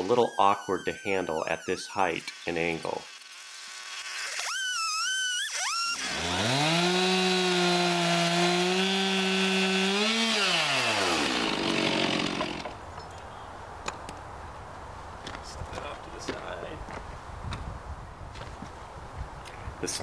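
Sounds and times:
chainsaw cutting log: 0:00.0 - 0:12.8.

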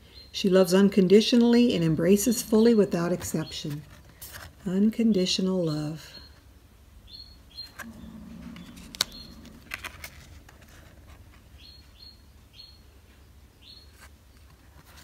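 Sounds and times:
small bird chirping: 0:07.0 - 0:10.1, 0:11.5 - 0:14.5
playing card rustle: 0:07.8 - 0:11.5, 0:13.9 - 0:15.0.

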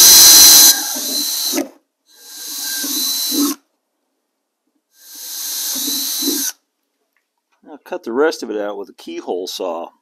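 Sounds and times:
cordless drill boring holes: 0:00.0 - 0:03.6, 0:05.0 - 0:06.6.

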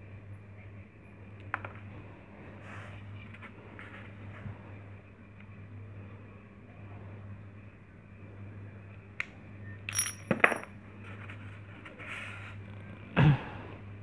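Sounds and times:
metal parts clinking: 0:09.9 - 0:10.7.

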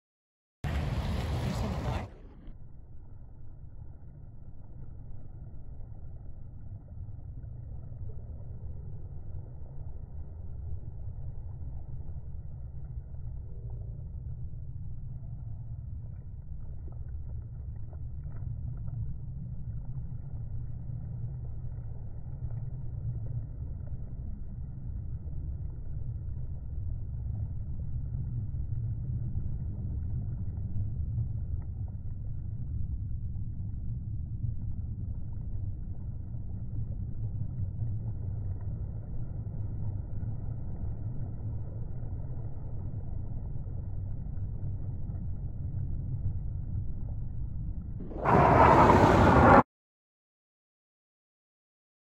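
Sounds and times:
distant jet aircraft rumble: 0:00.6 - 0:02.5, 0:48.0 - 0:49.6.

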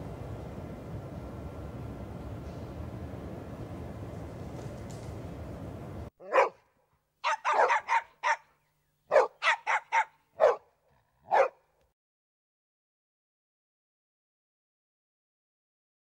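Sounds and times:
background hum: 0:00.0 - 0:11.9
dog barking: 0:06.2 - 0:08.5, 0:09.1 - 0:11.7.

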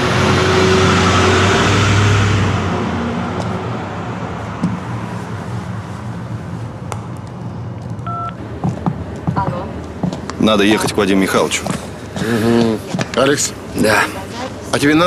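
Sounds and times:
car driving off: 0:00.0 - 0:05.9.

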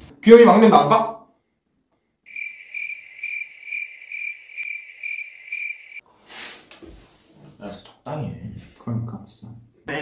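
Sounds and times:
crickets chirping: 0:02.3 - 0:06.0.

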